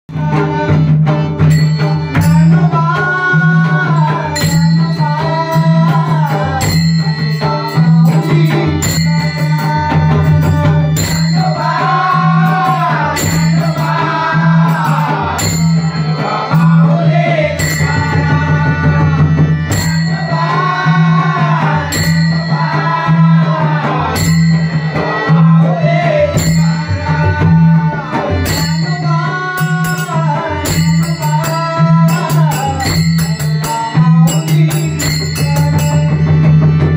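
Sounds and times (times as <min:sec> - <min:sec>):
harmonium drone: 0:00.1 - 0:36.9
man singing: 0:00.1 - 0:36.9
hand drum beating: 0:00.2 - 0:36.9
brass hand cymbals clashing: 0:04.4 - 0:16.8, 0:17.6 - 0:18.2, 0:24.2 - 0:25.4, 0:28.5 - 0:36.7.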